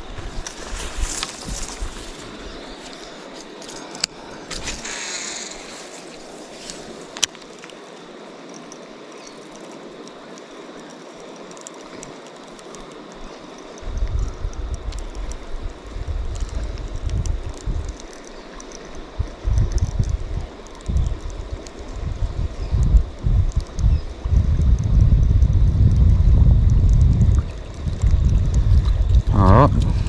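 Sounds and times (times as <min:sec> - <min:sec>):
steady hiss: 0:00.0 - 0:30.0
wind buffeting microphone: 0:13.8 - 0:30.0.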